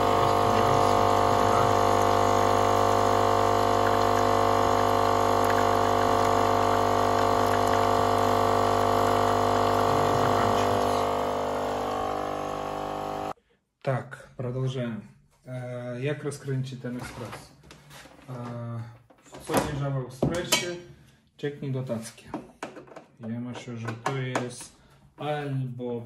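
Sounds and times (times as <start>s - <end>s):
water pump buzzing hum: 0.0s - 13.4s.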